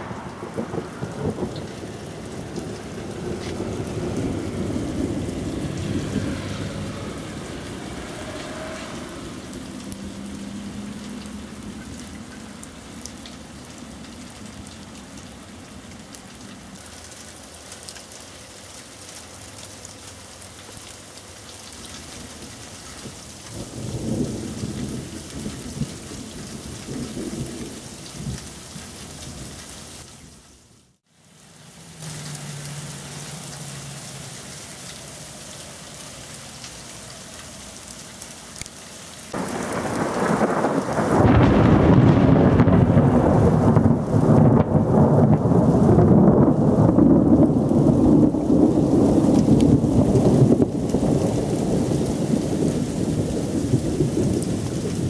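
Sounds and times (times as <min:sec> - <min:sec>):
rolling thunder: 0:00.0 - 0:09.8, 0:23.5 - 0:28.5, 0:39.3 - 0:55.0
heavy rain pattering: 0:00.0 - 0:55.0.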